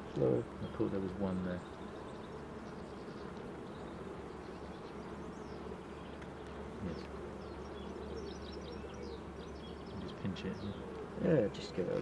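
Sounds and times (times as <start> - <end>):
honeybees buzzing: 0.0 - 12.0.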